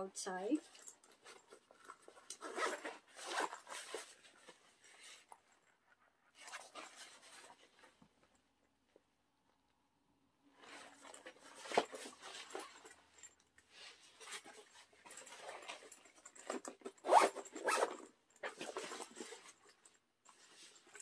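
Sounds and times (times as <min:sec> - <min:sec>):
backpack zipper opening and closing: 0:00.7 - 0:04.2, 0:15.1 - 0:19.4.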